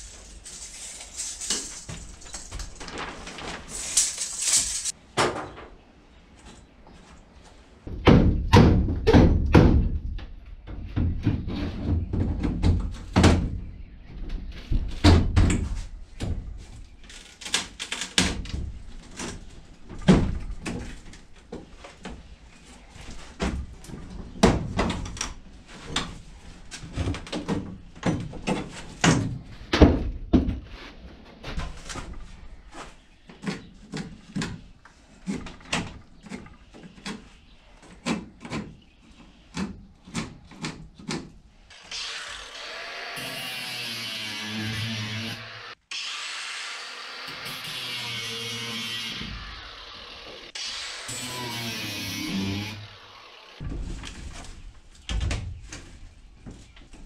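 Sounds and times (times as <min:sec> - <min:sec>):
wooden studs knocking and banging: 0:07.8 - 0:16.7, 0:17.4 - 0:22.3, 0:23.4 - 0:26.2, 0:26.8 - 0:30.7, 0:53.6 - 0:57.0.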